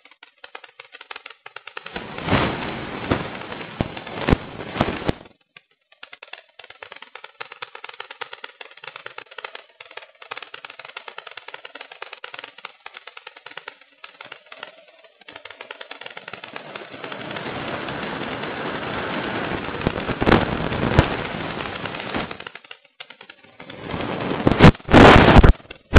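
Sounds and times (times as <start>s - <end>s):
fast crackling rattle: 0.0s - 25.9s
sharp cracks: 0.0s - 25.9s
wind rushing: 2.0s - 5.2s.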